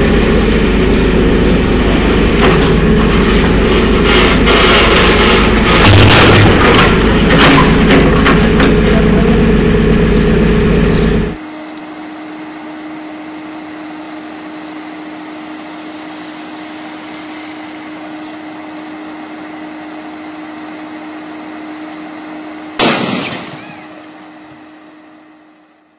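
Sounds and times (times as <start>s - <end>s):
faint hum: 0.0s - 25.9s
electrical short-circuit bang: 5.6s - 7.7s, 22.8s - 24.6s
outdoor hiss: 11.4s - 24.8s.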